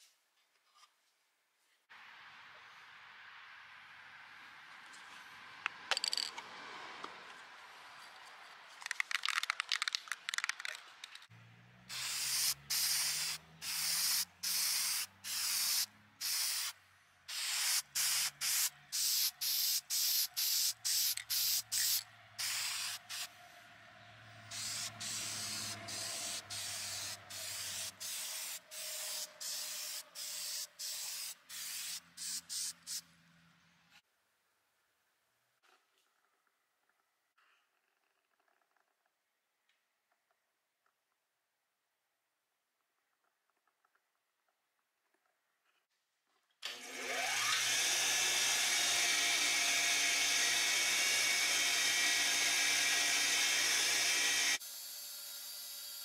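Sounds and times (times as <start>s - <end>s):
spray can ball rattling: 5.9s - 6.4s, 8.8s - 11.3s, 11.9s - 16.7s, 17.3s - 23.3s, 24.5s - 33.0s
spray paint hissing bursts: 11.9s - 23.4s, 24.5s - 33.1s.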